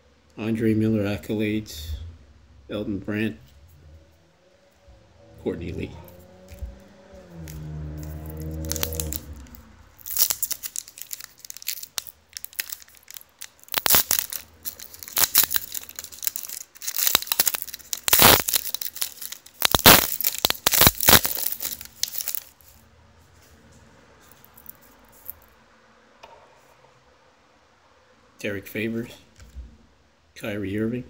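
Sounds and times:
foil wrapper tearing and crinkling: 0:07.4 - 0:22.7.

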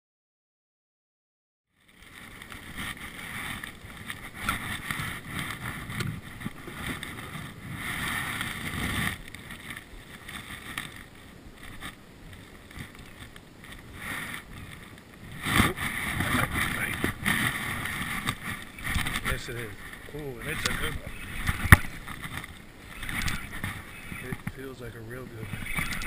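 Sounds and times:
wind buffeting microphone: 0:14.3 - 0:26.0.

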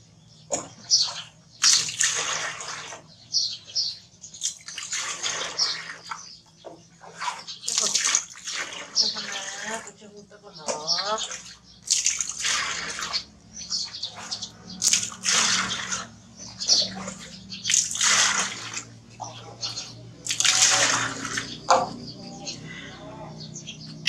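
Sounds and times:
water pouring into basin: 0:01.6 - 0:03.1, 0:04.4 - 0:06.3, 0:07.2 - 0:10.0, 0:11.1 - 0:13.4, 0:14.2 - 0:19.1, 0:20.2 - 0:21.6.

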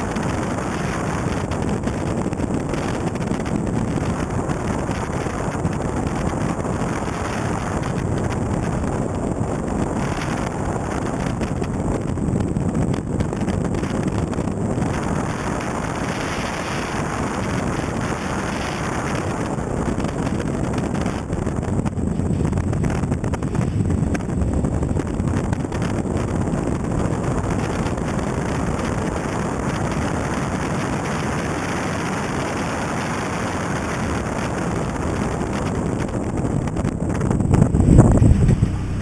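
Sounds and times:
wind noise on microphone: 0:00.0 - 0:39.0
rally car engine under load: 0:35.4 - 0:39.0.

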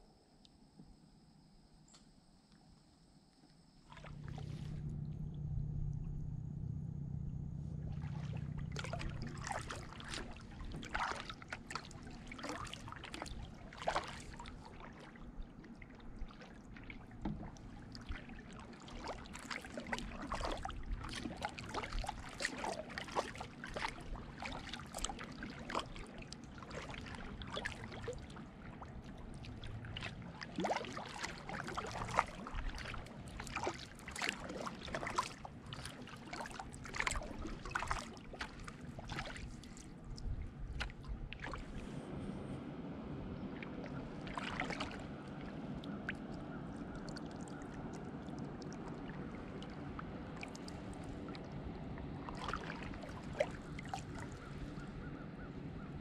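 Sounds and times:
paddle dipping in water: 0:03.8 - 0:06.3, 0:07.5 - 0:56.0
water dripping off paddle: 0:07.9 - 0:41.9, 0:43.6 - 0:51.6.

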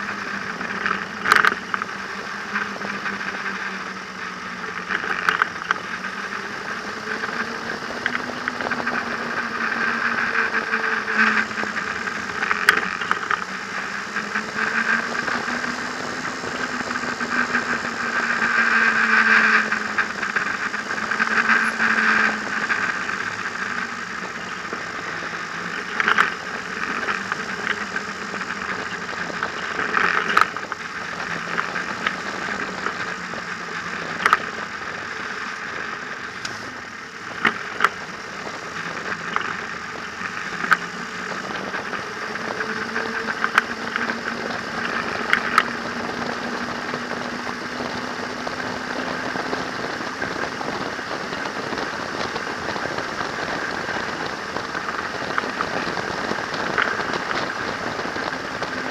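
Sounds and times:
trike engine running: 0:00.0 - 0:58.9
wind and road noise: 0:00.0 - 0:58.9.

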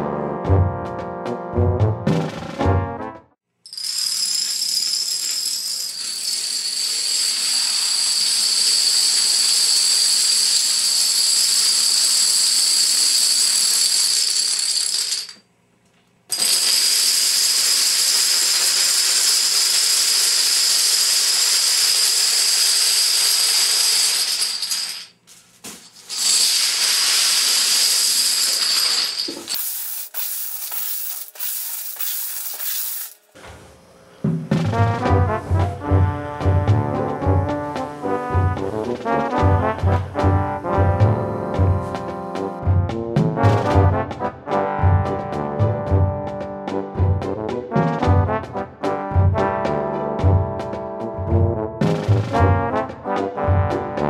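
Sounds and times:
dominoes toppling clatter: 0:03.7 - 0:15.4, 0:16.3 - 0:25.2, 0:25.9 - 0:33.3.

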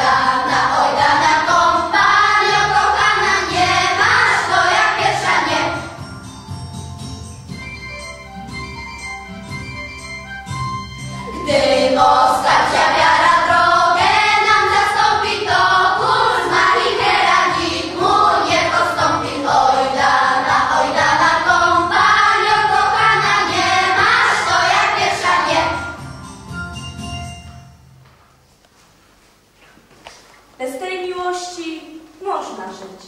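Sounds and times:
children's choir singing: 0:00.0 - 0:06.0, 0:11.2 - 0:26.0
instrumental accompaniment: 0:00.0 - 0:29.6.

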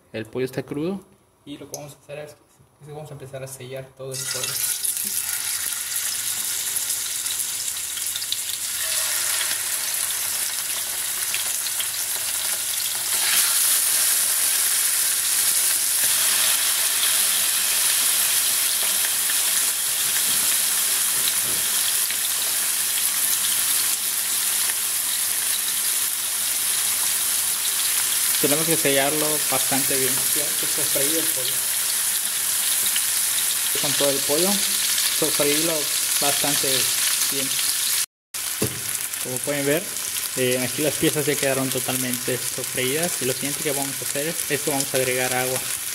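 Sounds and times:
chicken sizzling in a frying pan: 0:04.2 - 0:45.9.

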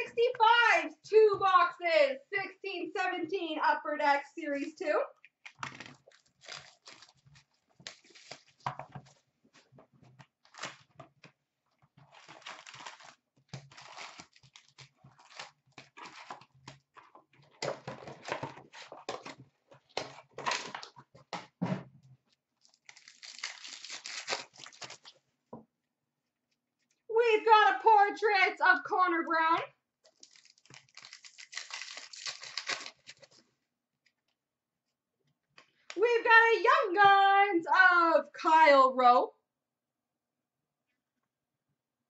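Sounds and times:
plastic wrapping crinkling and tearing: 0:05.5 - 0:09.2, 0:10.3 - 0:11.0, 0:12.0 - 0:21.0, 0:22.6 - 0:25.2, 0:30.1 - 0:33.4.

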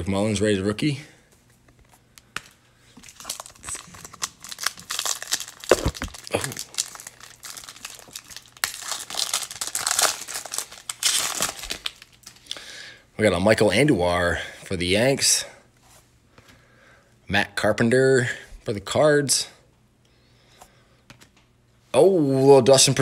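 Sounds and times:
wrapper crinkling and tearing: 0:03.0 - 0:12.6.

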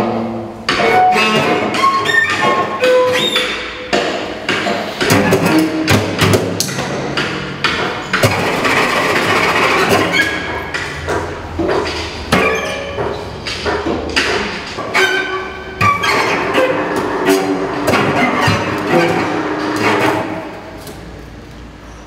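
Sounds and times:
scratchy cello bowing: 0:00.8 - 0:03.5, 0:14.9 - 0:20.6
high squeaky cello tones: 0:00.8 - 0:03.8, 0:12.3 - 0:13.2, 0:14.9 - 0:20.4
cello bow knocking strings: 0:09.1 - 0:20.6.

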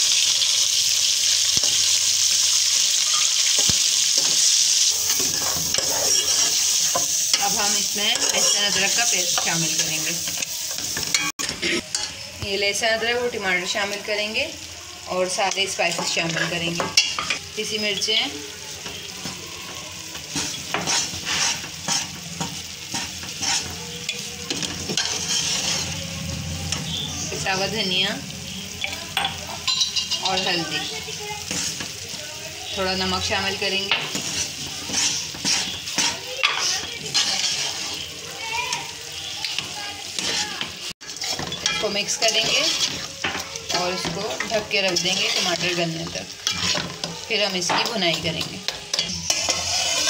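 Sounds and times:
minced meat sizzling in oil: 0:00.0 - 0:50.0
utensil scraping and tapping pot: 0:05.1 - 0:12.1, 0:20.3 - 0:26.0, 0:33.8 - 0:38.0, 0:39.4 - 0:50.0
ladle stirring and knocking pot: 0:33.9 - 0:38.0, 0:40.2 - 0:45.8.

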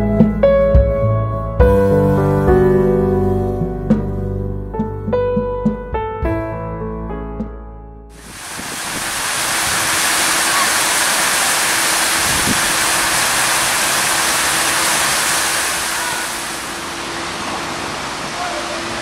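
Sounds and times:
fountain water splashing into basin: 0:08.2 - 0:19.0
outdoor background noise: 0:08.2 - 0:19.0.

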